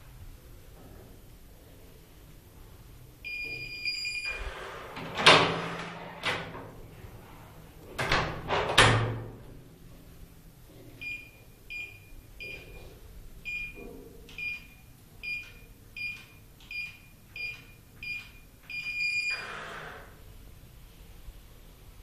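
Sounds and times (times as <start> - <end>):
keypad beeps: 11.0 - 12.8, 13.5 - 19.4.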